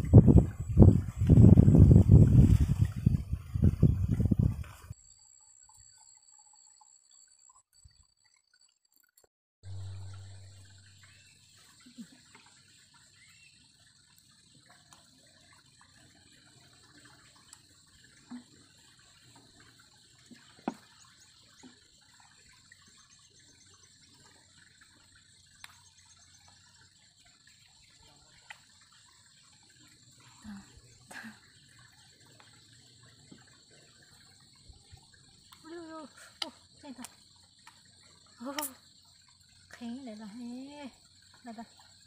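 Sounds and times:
water moving in bottle: 0.0 - 5.0.

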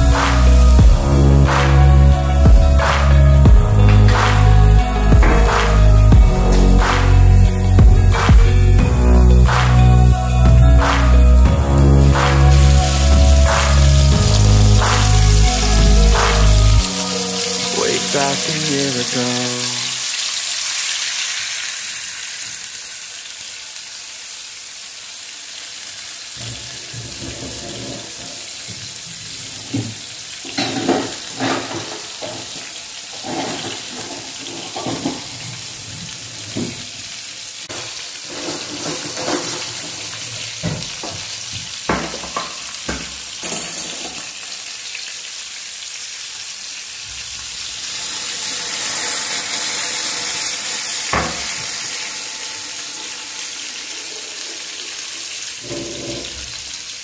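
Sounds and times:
fish sizzling in oil: 8.9 - 57.0
knocks and clatter in pan: 29.7 - 32.6, 37.7 - 40.0, 41.9 - 44.2.

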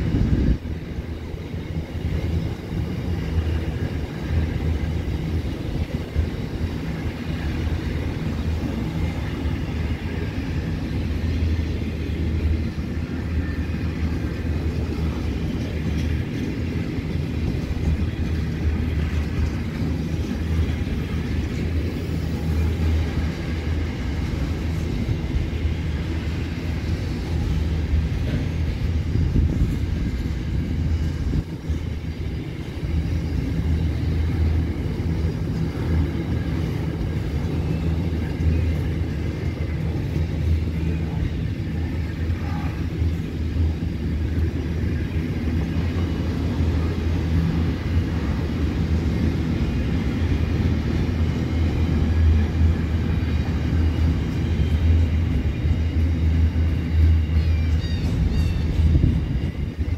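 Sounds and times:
freight train wheels rumbling on rail: 0.0 - 59.9.

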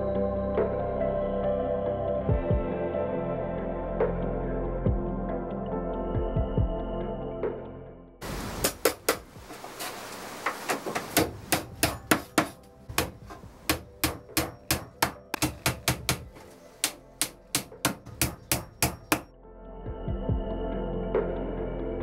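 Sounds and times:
hammer knocking on wood: 10.9 - 19.3.

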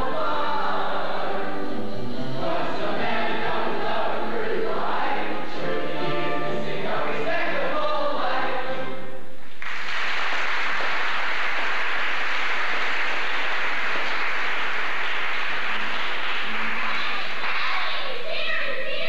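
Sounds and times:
choir singing a chord: 0.0 - 9.0
audience applause: 9.5 - 18.0.

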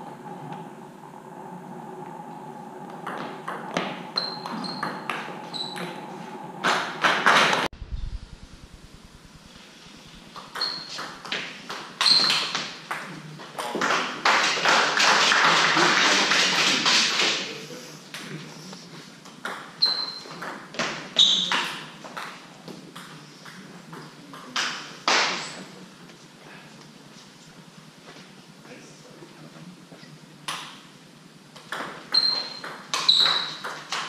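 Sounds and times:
table tennis ball hits: 31.6 - 34.0.

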